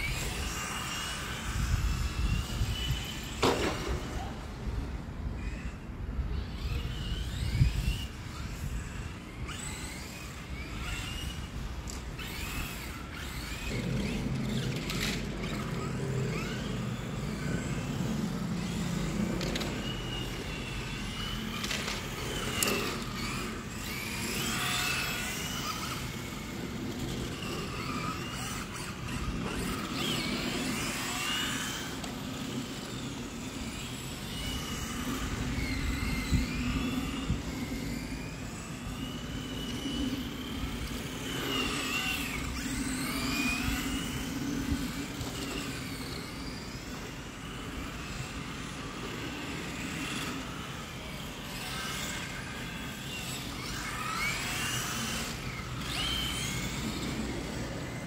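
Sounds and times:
electric toy car motor whine: 0:00.0 - 0:58.0.

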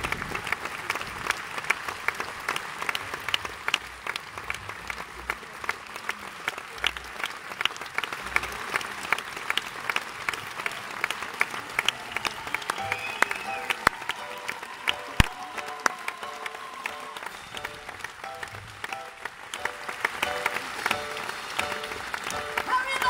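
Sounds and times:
audience applause: 0:00.0 - 0:23.0
sharp individual claps: 0:06.8 - 0:23.0.

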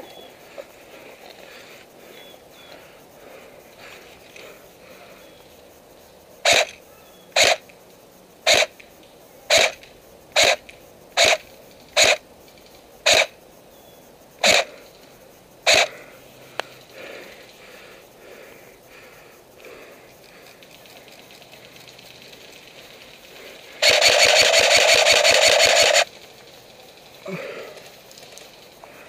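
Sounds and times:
airsoft rifle shots: 0:06.4 - 0:06.8, 0:07.4 - 0:07.6, 0:08.5 - 0:08.7, 0:09.5 - 0:09.8, 0:10.4 - 0:10.6, 0:11.2 - 0:11.4, 0:12.0 - 0:12.2, 0:13.0 - 0:13.3, 0:14.4 - 0:14.7, 0:15.7 - 0:15.9, 0:23.8 - 0:26.1.

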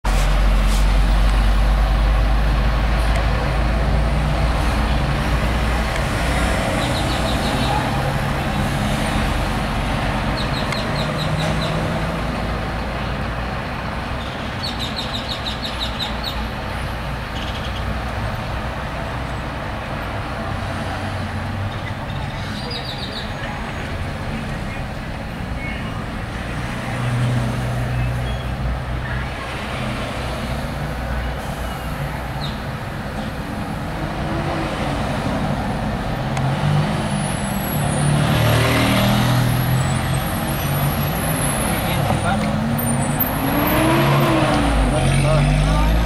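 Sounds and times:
heavy low engine rumble: 0:00.0 - 0:14.6
vehicle engines idling: 0:00.0 - 0:46.0.

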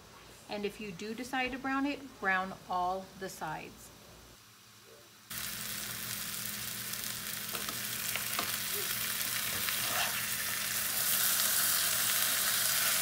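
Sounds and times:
meat sizzling in a skillet: 0:05.3 - 0:13.0.

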